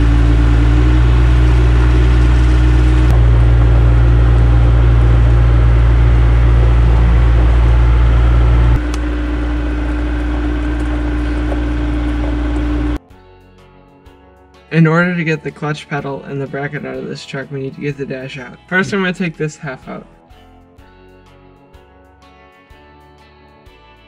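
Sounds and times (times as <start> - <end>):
loader engine low drone: 0.0 - 13.0.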